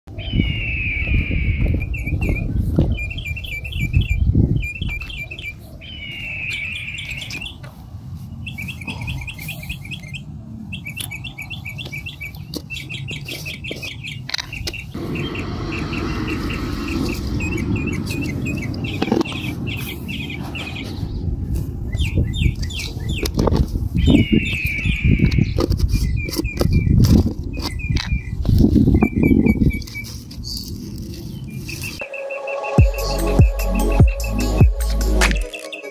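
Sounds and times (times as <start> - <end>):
low rumble: 15.0 - 19.7
downward-sliding bird call: 15.0 - 20.9.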